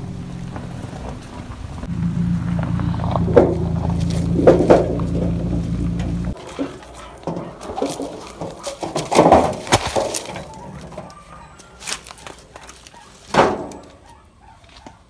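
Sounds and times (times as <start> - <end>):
rustling on dry leaves: 0.0 - 15.0
wheelbarrow moved: 0.0 - 15.0
tree stump knocking: 2.6 - 11.2.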